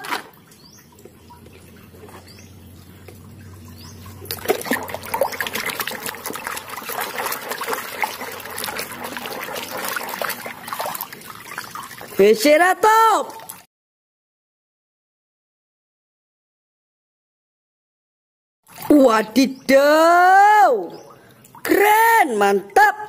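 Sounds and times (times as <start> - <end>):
water splashing in plastic basin: 0.0 - 13.7, 18.7 - 19.4.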